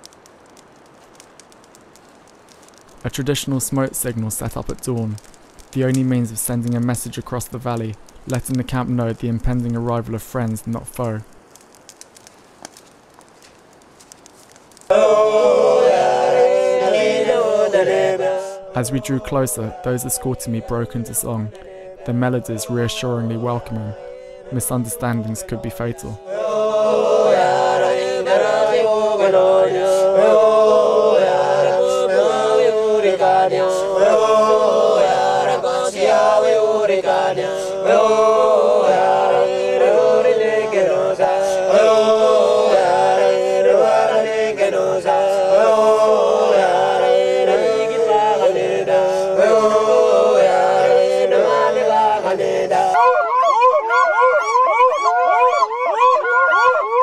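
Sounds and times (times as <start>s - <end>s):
men chanting in unison: 14.9s - 53.0s.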